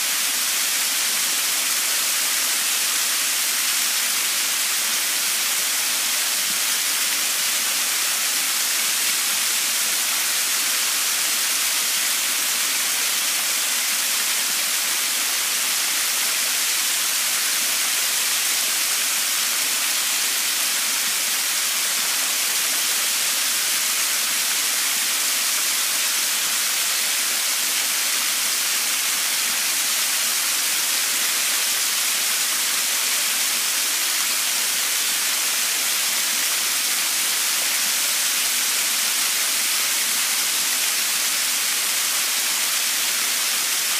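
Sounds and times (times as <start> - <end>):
small waterfall splashing on rocks: 0.0 - 43.9.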